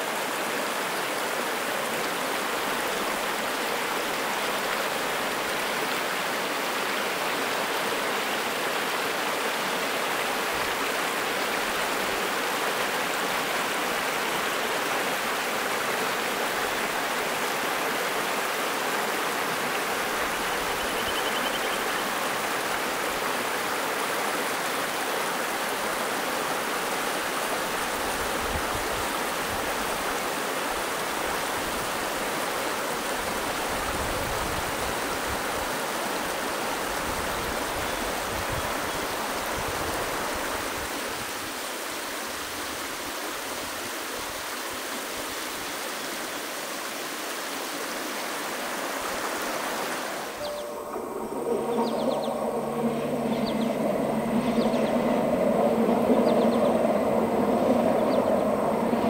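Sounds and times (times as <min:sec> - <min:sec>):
river rushing over rocks: 0:00.0 - 0:59.0.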